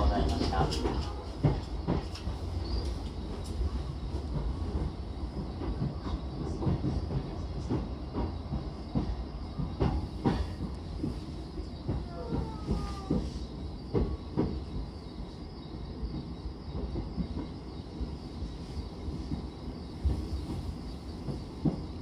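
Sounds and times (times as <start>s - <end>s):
train running rumble: 0.0s - 22.0s.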